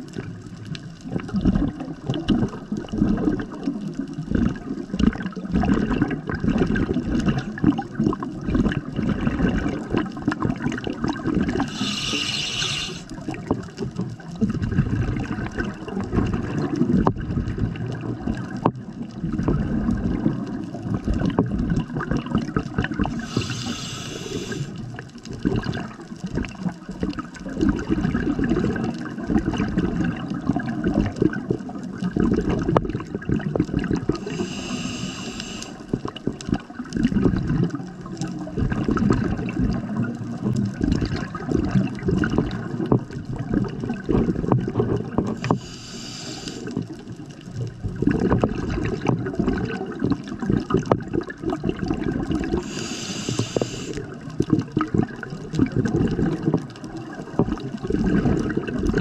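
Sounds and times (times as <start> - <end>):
gurgling exhaled bubbles: 0.0 - 59.0
hissing regulator inhales: 11.6 - 13.2, 23.1 - 24.8, 34.2 - 35.9, 45.4 - 46.8, 52.6 - 54.0.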